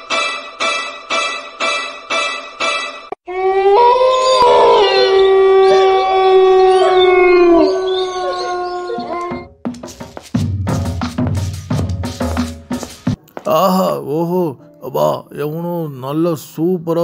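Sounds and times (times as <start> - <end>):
long howl: 3.3 - 9.4.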